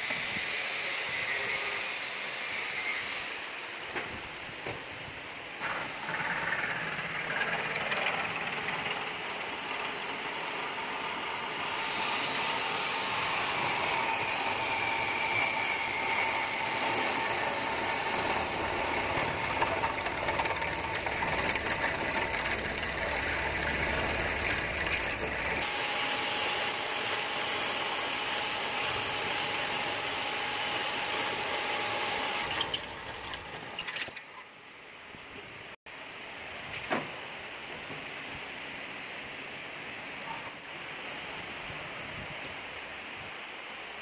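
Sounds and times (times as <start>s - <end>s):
drilling machine boring steel: 0.0s - 3.7s, 5.6s - 34.2s.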